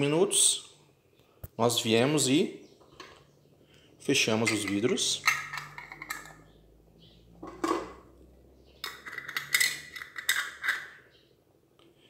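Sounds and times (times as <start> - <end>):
metal lids twisted on glass jars: 4.4 - 6.5, 8.8 - 11.1.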